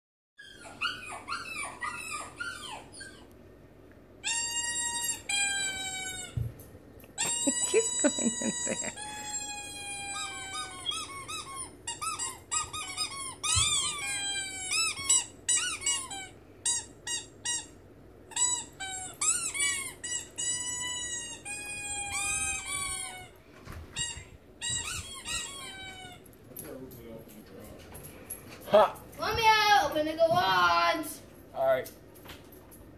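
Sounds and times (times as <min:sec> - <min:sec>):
rubber squeaky ball squeaking: 0:04.2 - 0:06.4, 0:07.2 - 0:17.7, 0:18.3 - 0:23.3, 0:24.0 - 0:26.2.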